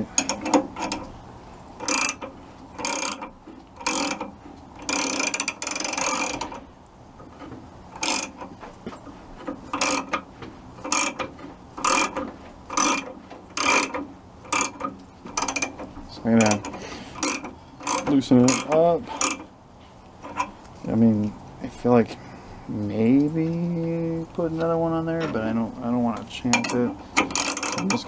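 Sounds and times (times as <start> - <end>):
ratcheting wrench clicking: 0.0 - 1.1, 1.8 - 6.6, 7.3 - 8.5, 9.7 - 19.5, 26.5 - 28.0.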